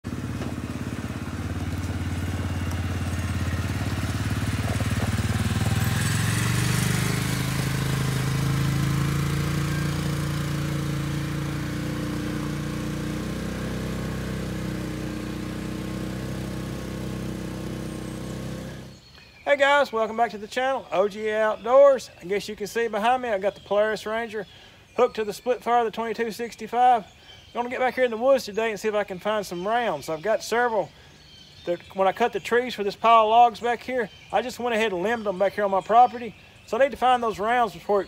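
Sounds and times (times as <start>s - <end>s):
utility vehicle engine driving past: 0.0s - 19.0s.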